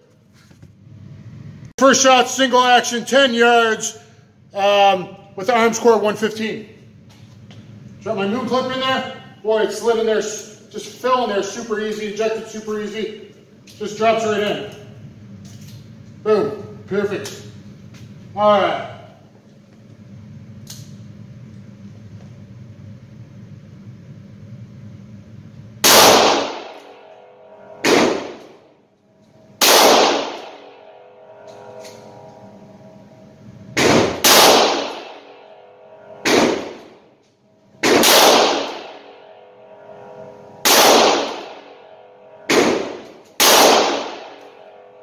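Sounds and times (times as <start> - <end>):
revolver shots ringing indoors: 20.5 - 21.7, 25.7 - 45.0.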